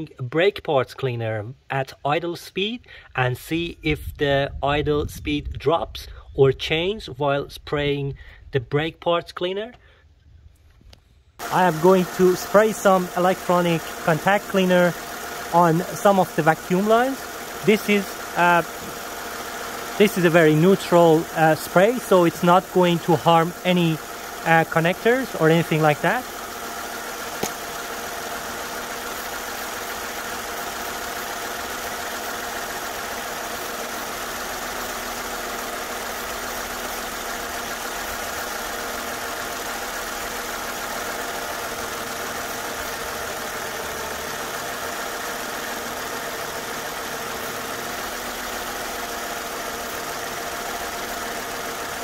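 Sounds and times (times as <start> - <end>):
car engine idling: 11.4 - 52.0.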